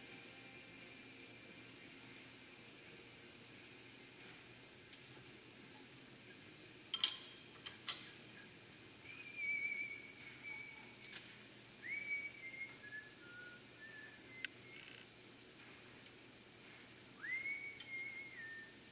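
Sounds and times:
steel clamps clinking on metal: 6.9 - 8.2
person whistling high notes: 17.2 - 18.9.

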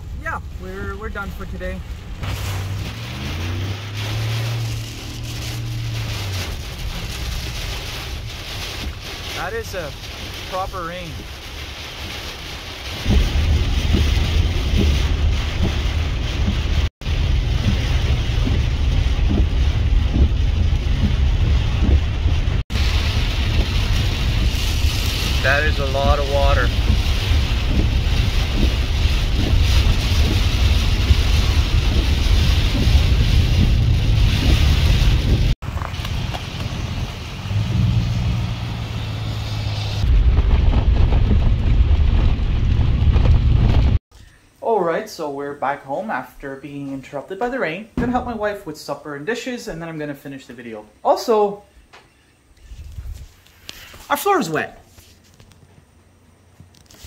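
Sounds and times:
heavy rain on a car: 0.0 - 44.0
road and wind rumble: 0.0 - 44.1, 52.4 - 53.8.

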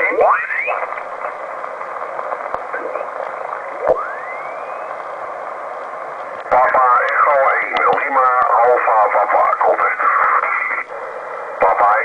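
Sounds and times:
radio static hiss: 0.0 - 12.0
radio whistling glides: 3.8 - 5.2.

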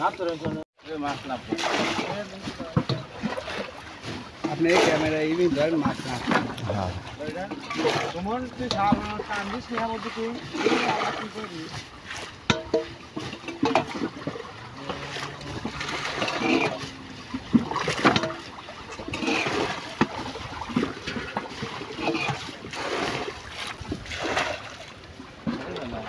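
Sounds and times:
water splashing and dripping: 0.0 - 26.0.

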